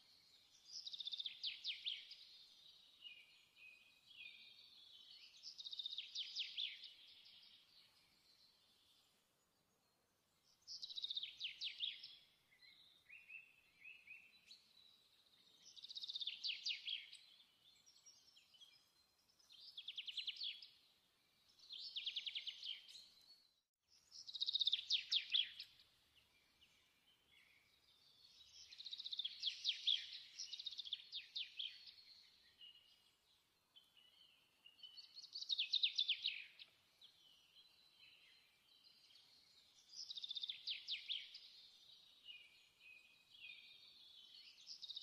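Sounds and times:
songbird singing trilled phrases: 0:00.2 - 0:08.9, 0:10.6 - 0:20.8, 0:21.5 - 0:33.0, 0:33.7 - 0:45.0.

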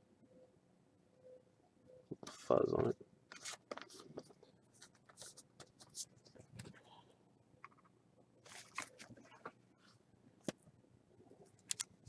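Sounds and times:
cards rustling in plastic sleeve: 0:03.3 - 0:06.1, 0:08.5 - 0:09.4.

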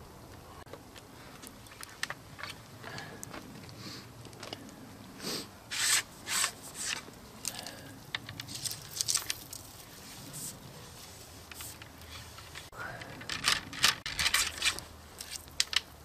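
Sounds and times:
ramrod scraping in rifle barrel: 0:05.7 - 0:07.1, 0:11.4 - 0:15.8
ramrod clicks and rubbing: 0:11.4 - 0:16.0.

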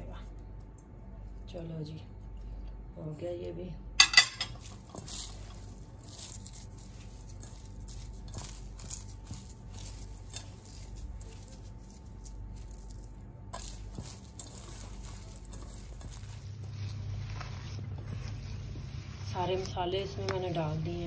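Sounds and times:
low hum: 0:00.0 - 0:21.0
thin steady whine: 0:00.0 - 0:21.0
hands kneading mixture squelching: 0:04.6 - 0:21.0.

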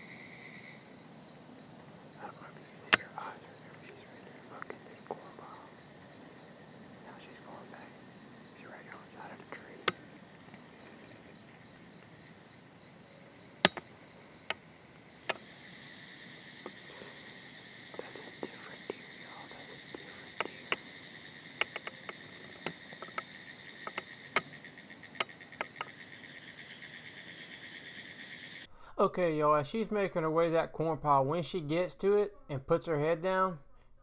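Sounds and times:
crickets chirping: 0:00.0 - 0:30.6
sharp clicks and snaps: 0:02.5 - 0:05.2, 0:08.8 - 0:10.6, 0:13.6 - 0:14.6, 0:15.2 - 0:15.4, 0:18.0 - 0:20.9, 0:21.5 - 0:24.5, 0:25.2 - 0:25.9.

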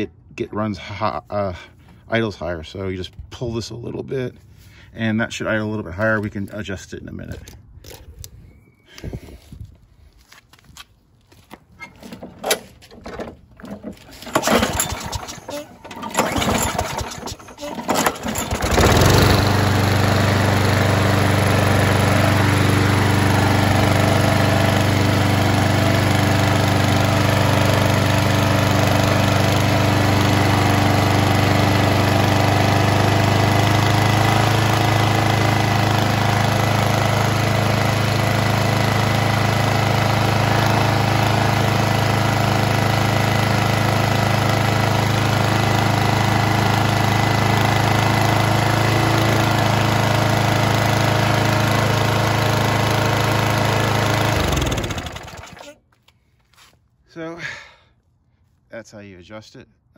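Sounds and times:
lawn mower engine idling: 0:11.8 - 0:55.7.

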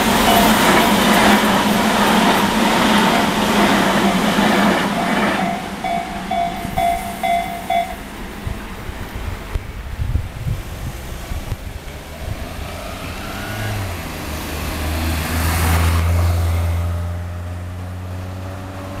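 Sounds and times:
car passing close by: 0:10.5 - 0:19.0.

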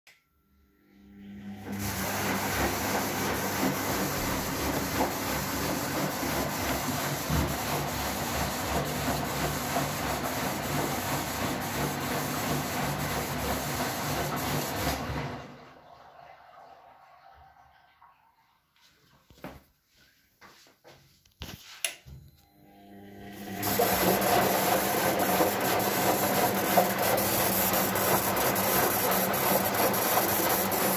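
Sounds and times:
washing machine drum motor hum: 0:01.3 - 0:15.8, 0:22.9 - 0:30.9
water and laundry sloshing: 0:01.8 - 0:18.0, 0:23.6 - 0:30.9.

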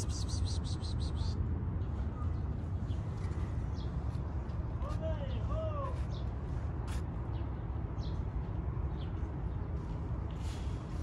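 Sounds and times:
faint high bird chirps: 0:00.0 - 0:01.4.

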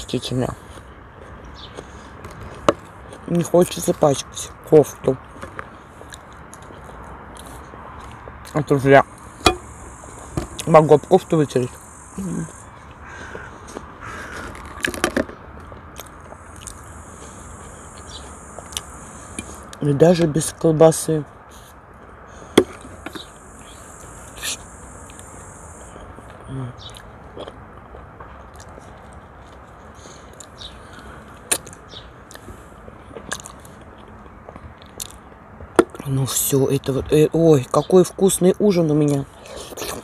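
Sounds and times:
person chewing food: 0:15.6 - 0:19.8, 0:26.9 - 0:35.2
wet mouth clicks and smacks: 0:16.0 - 0:16.8, 0:33.3 - 0:33.7
mouth smacking clicks: 0:16.0 - 0:16.9, 0:17.9 - 0:19.8, 0:31.5 - 0:32.5, 0:33.2 - 0:34.2, 0:34.8 - 0:35.2.

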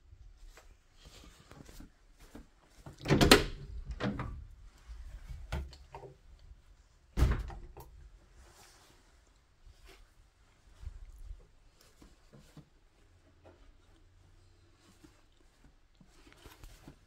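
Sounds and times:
door latch clattering: 0:03.0 - 0:04.2.

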